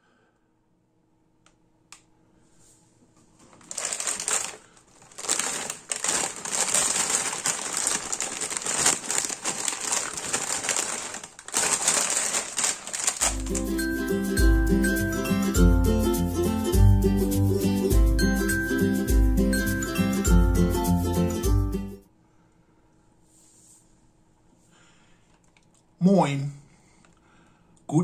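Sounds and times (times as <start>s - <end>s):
crisp packet crinkling: 3.4s - 13.8s
plucked-string music: 13.2s - 22.0s.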